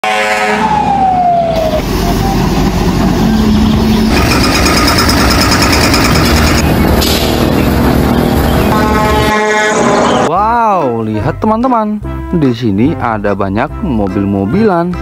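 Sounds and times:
fire engine siren: 0.0s - 5.4s, 6.2s - 10.3s
heavy truck engine: 0.2s - 10.3s
fast even pulsing: 2.7s - 9.1s.

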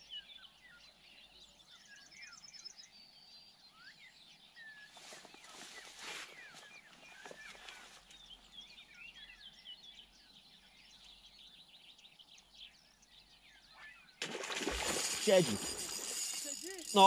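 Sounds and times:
birds chirping: 0.0s - 17.0s
fish striking water surface: 14.2s - 16.6s
riverside ambience: 14.6s - 17.0s.

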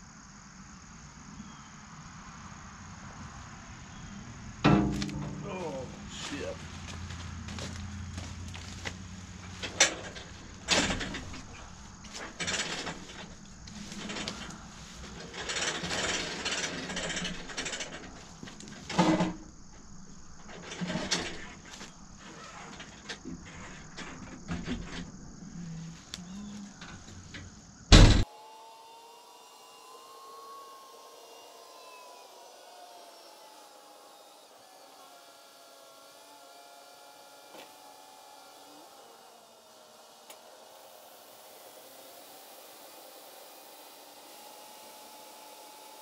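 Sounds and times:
faint hum with whine: 0.0s - 46.0s
metal clanks and knocks: 4.7s - 6.1s.

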